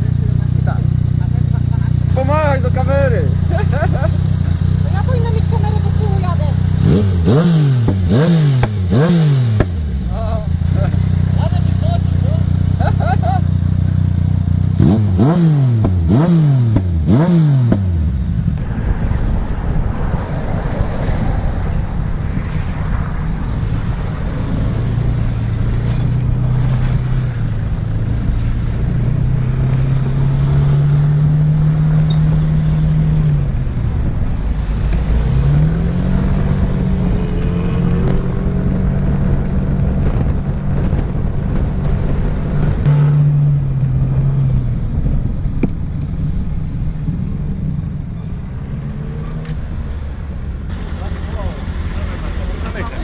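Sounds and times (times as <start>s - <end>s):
wind and road noise: 0.0s - 53.0s
scooter engine accelerating: 23.5s - 53.0s.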